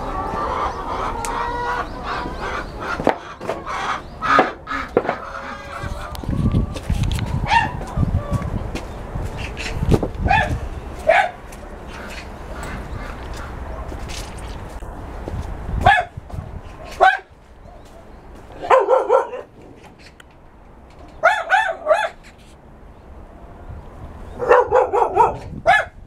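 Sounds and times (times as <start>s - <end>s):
dogs barking: 7.4s - 8.0s, 10.3s - 14.1s, 15.8s - 16.2s, 16.8s - 19.6s, 21.1s - 22.2s, 24.3s - 26.0s.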